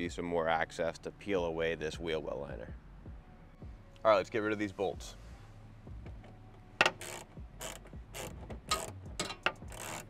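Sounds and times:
ratcheting socket wrench clicking: 0:06.8 - 0:10.0.

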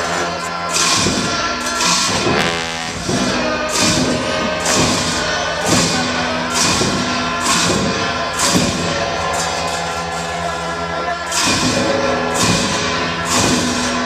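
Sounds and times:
sustained steady tones: 0:02.1 - 0:06.5.

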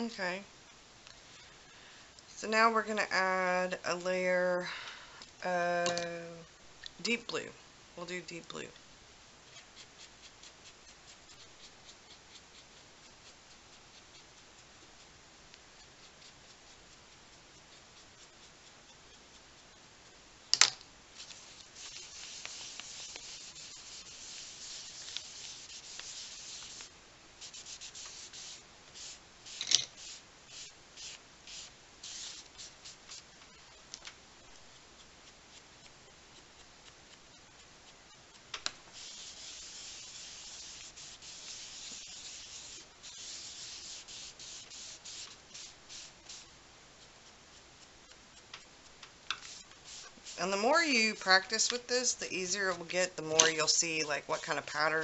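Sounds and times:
pencil scratching: 0:09.5 - 0:15.2, 0:15.8 - 0:19.7, 0:21.2 - 0:38.2, 0:38.9 - 0:46.4, 0:49.4 - 0:55.0
wipe scrubbing on paper: 0:21.2 - 0:33.2, 0:38.9 - 0:46.4.

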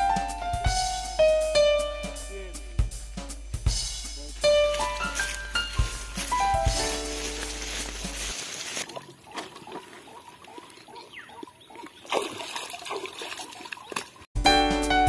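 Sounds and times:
water splashing and trickling: 0:04.2 - 0:14.4.

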